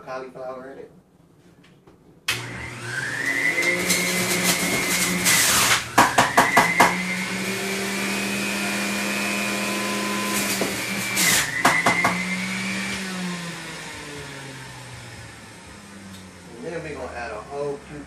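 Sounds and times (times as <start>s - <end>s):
electric juicer motor whining: 2.3s - 16.6s.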